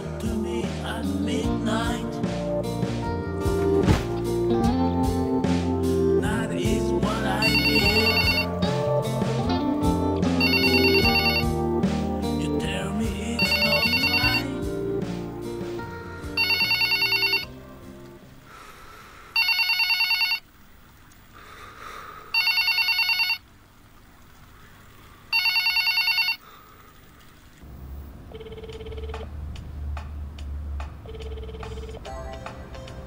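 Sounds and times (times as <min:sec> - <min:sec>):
telephone ringing: 0:07.4 - 0:08.6, 0:10.4 - 0:11.6, 0:13.4 - 0:14.5, 0:16.4 - 0:17.5, 0:19.4 - 0:20.4, 0:22.4 - 0:23.4, 0:25.3 - 0:26.4, 0:28.3 - 0:29.3, 0:31.1 - 0:32.1.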